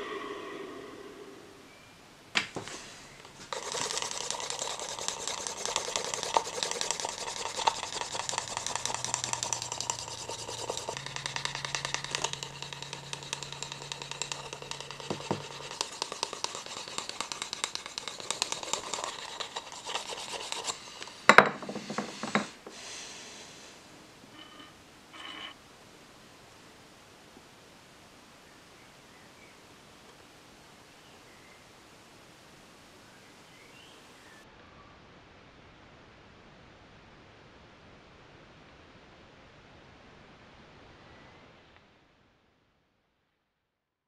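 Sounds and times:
hands rubbing leather sheath: 2.6 - 22.6.

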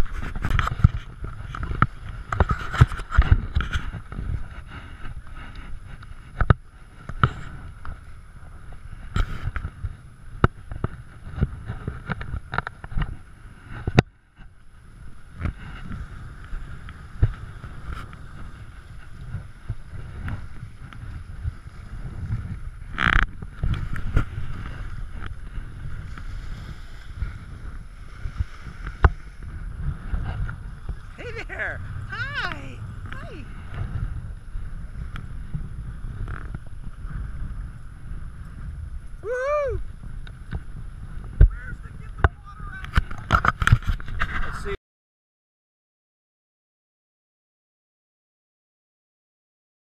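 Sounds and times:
wind buffeting microphone: 0.0 - 44.8
small waves washing against rock: 14.7 - 33.9.

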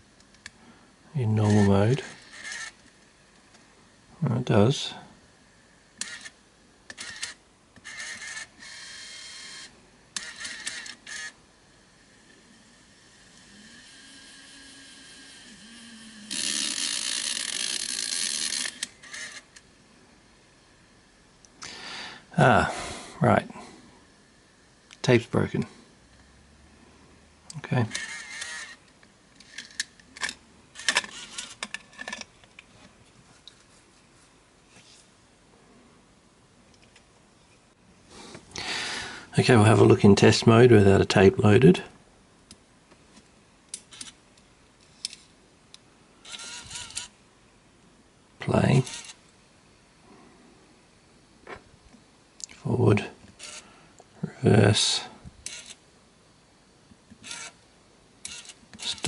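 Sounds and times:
small motors whirring: 1.5 - 2.8, 6.9 - 11.4, 12.1 - 19.5, 27.9 - 28.8, 46.3 - 47.1, 48.8 - 49.2, 57.2 - 57.6, 58.2 - 59.0.

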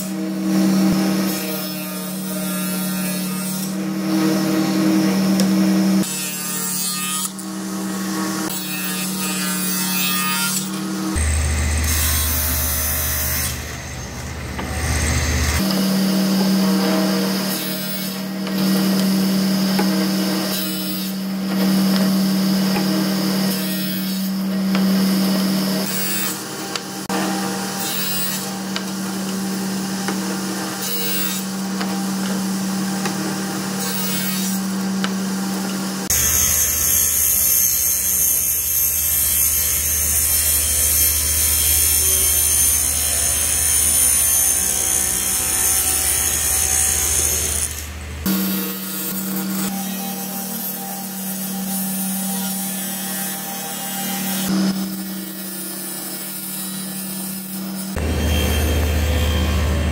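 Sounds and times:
table saw cutting plywood: 0.0 - 59.9
saw low hum with high whine: 7.2 - 23.6, 24.2 - 59.9.

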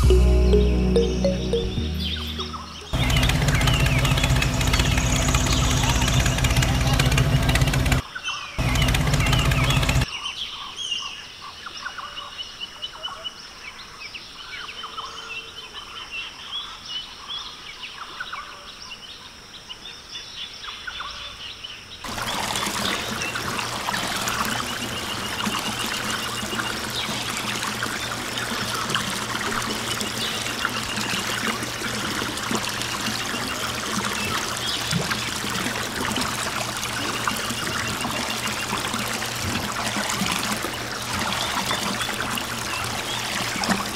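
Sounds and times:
mini water pump humming: 2.0 - 8.0, 8.6 - 10.1, 22.1 - 43.9
water trickling and pouring: 22.1 - 43.9.

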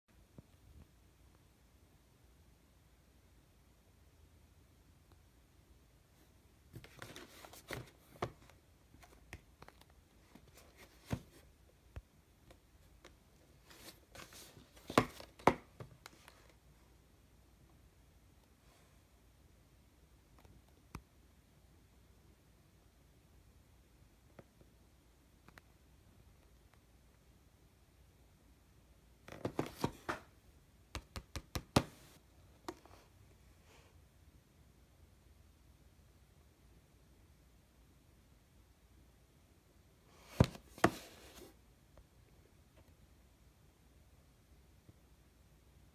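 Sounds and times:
cardboard box rustling and tapping: 13.7 - 16.2.

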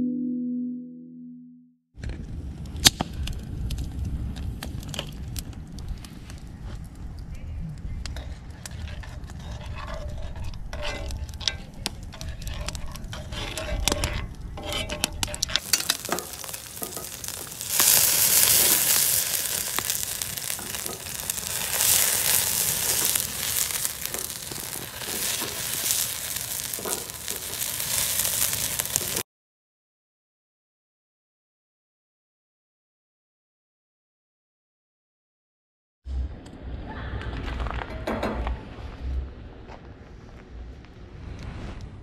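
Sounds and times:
food sizzling in a skillet: 14.8 - 29.2
low rumble: 36.1 - 42.0.

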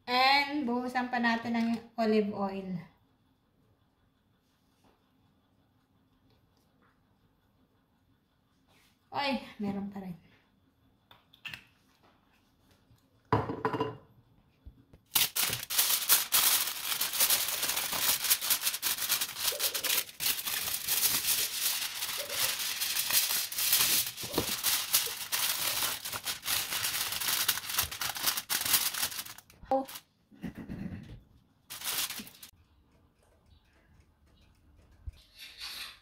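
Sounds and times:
aluminium foil crinkling: 15.0 - 30.0, 31.7 - 32.5.

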